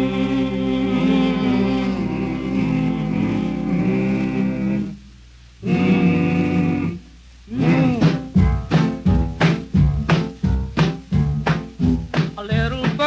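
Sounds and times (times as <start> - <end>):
band playing swing beat: 0.0 - 4.9, 5.6 - 13.0
vocal group singing harmonies: 0.0 - 8.8.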